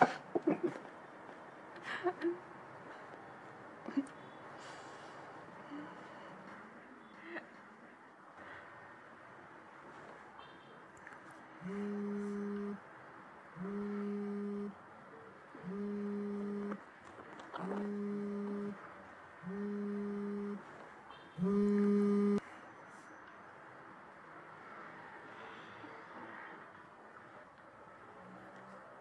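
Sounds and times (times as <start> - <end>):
mobile phone vibrating: 11.6 - 12.8, 13.6 - 14.8, 15.6 - 16.8, 17.6 - 18.8, 19.4 - 20.7, 21.4 - 22.4.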